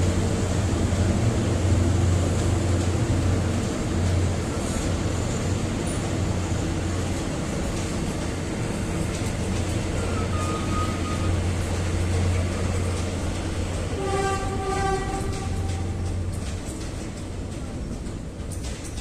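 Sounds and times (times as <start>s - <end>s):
train rolling on track: 0.0s - 19.0s
train horn: 10.0s - 11.4s, 13.9s - 16.0s.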